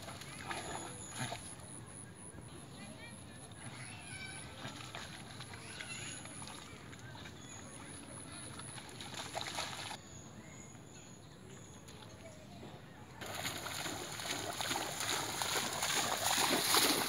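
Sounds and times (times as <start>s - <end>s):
dog splashing through water: 0.0s - 1.8s, 3.6s - 10.0s, 13.2s - 17.0s.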